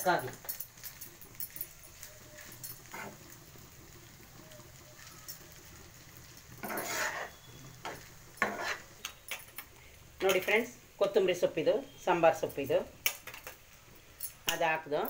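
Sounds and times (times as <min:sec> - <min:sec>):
metal spoon scraping frying pan: 0:02.4 - 0:03.4, 0:06.6 - 0:09.6.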